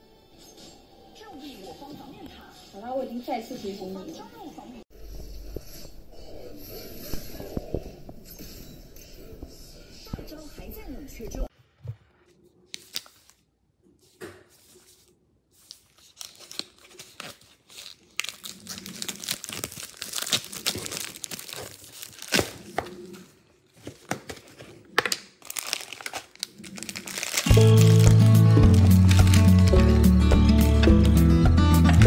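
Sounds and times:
plastic film crinkling: 0:14.6 - 0:31.2
plastic film ripping: 0:15.7 - 0:23.0, 0:23.7 - 0:31.2.

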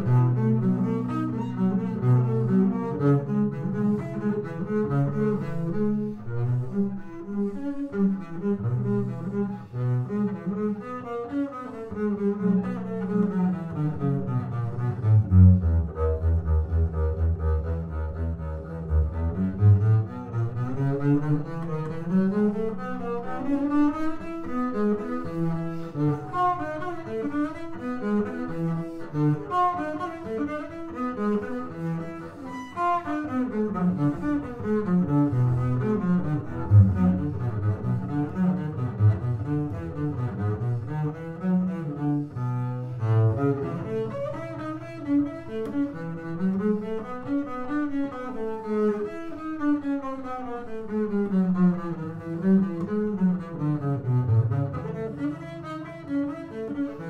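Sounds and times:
bowed double bass: 0:00.0 - 0:57.0.

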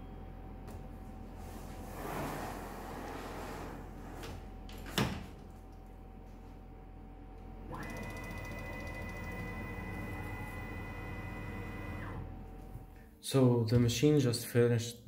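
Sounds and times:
low steady hum: 0:00.0 - 0:13.9
stepper motor whine: 0:07.7 - 0:12.5.

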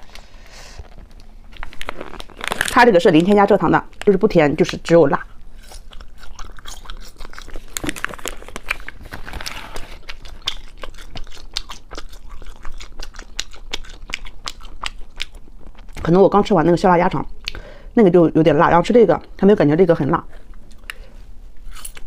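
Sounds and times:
plastic packaging rustling: 0:00.8 - 0:04.3, 0:07.5 - 0:10.2
wet chewing and bites: 0:04.0 - 0:16.1.

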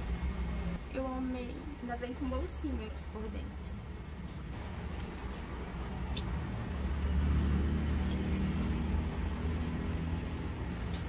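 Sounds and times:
chain strap clinking: 0:00.0 - 0:00.8, 0:03.2 - 0:08.5.

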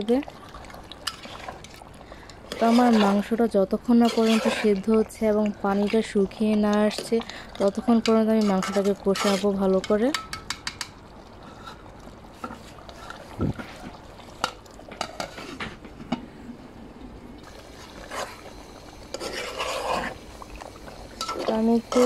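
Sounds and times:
metal spoon stirring in pot: 0:00.6 - 0:15.6, 0:17.8 - 0:18.5, 0:19.1 - 0:20.3, 0:21.2 - 0:22.0.

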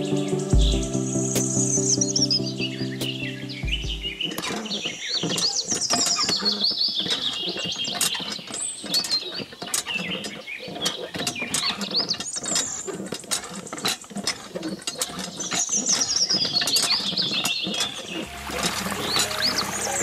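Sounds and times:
hand pump clicking and rattling: 0:04.2 - 0:20.0.

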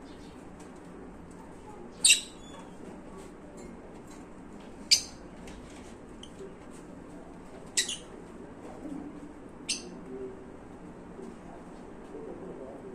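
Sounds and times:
faint bird chirps: 0:01.9 - 0:02.7, 0:04.9 - 0:05.2, 0:07.8 - 0:08.1, 0:09.6 - 0:10.0
lovebirds shrill calls: 0:02.0 - 0:02.7, 0:04.9 - 0:05.2, 0:07.8 - 0:08.1.

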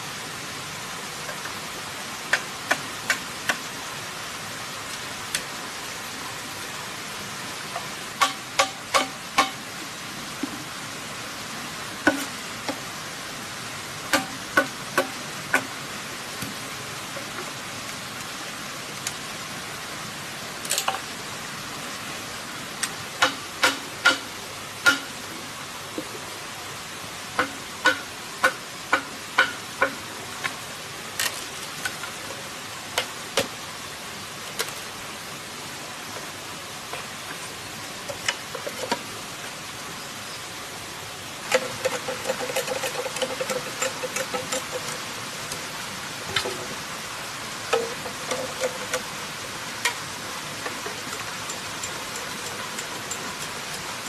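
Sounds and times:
steady background hiss: 0:00.0 - 0:54.0.

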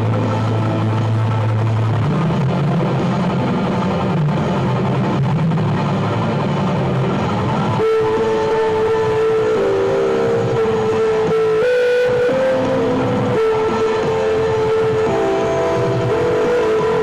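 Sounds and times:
distorted electric guitar: 0:00.0 - 0:17.0.

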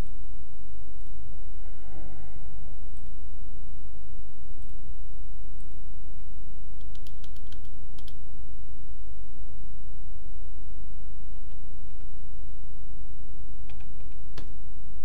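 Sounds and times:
steady low hum: 0:00.0 - 0:15.0
computer mouse clicks: 0:05.6 - 0:08.2, 0:11.3 - 0:12.1, 0:13.7 - 0:14.6
keyboard key presses: 0:05.6 - 0:08.2, 0:11.3 - 0:12.1, 0:13.7 - 0:14.6.

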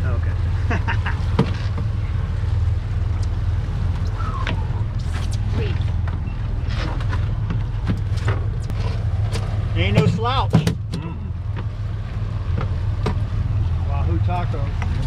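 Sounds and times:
outboard motors droning: 0:00.0 - 0:15.0
knocks and thumps: 0:01.3 - 0:01.9, 0:06.9 - 0:08.6, 0:09.3 - 0:11.7.

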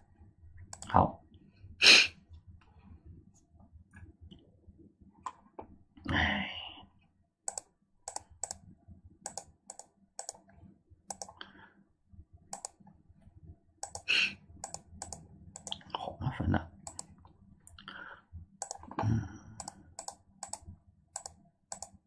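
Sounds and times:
computer mouse clicking: 0:00.7 - 0:00.9, 0:07.5 - 0:11.4, 0:12.5 - 0:13.0, 0:13.8 - 0:15.9, 0:16.8 - 0:17.8, 0:18.6 - 0:19.0, 0:19.6 - 0:22.0.

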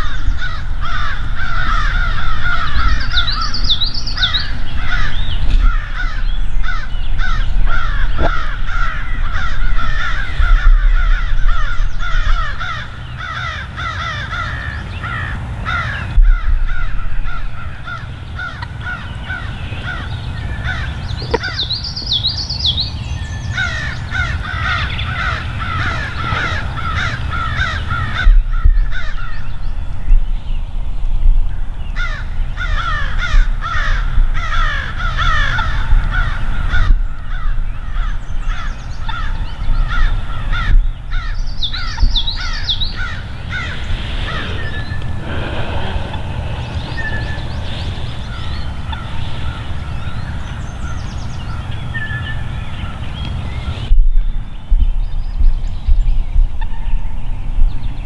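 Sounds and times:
steady low rumble: 0:00.0 - 0:13.2, 0:40.7 - 0:51.9
high twittering bird call: 0:00.0 - 0:30.6, 0:31.8 - 0:58.0
many birds calling: 0:00.0 - 0:30.8, 0:31.7 - 0:58.0.

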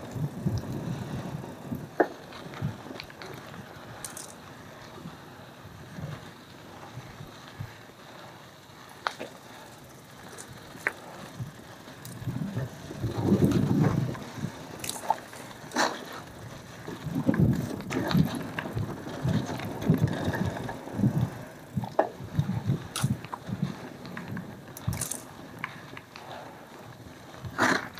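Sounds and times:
bike clicks and rattles: 0:00.0 - 0:27.9
bike tyres rumbling over dirt: 0:00.0 - 0:27.9.

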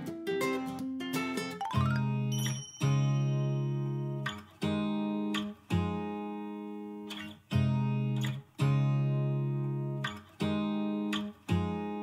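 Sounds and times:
acoustic guitar chords strummed: 0:01.6 - 0:12.0.

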